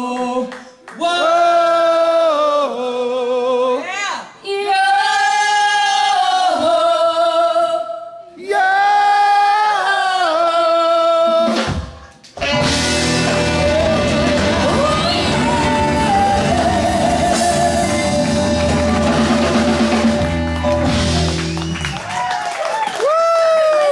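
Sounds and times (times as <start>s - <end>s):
live band playing: 11.4s - 22.3s
woman singing long notes: 13.3s - 19.7s.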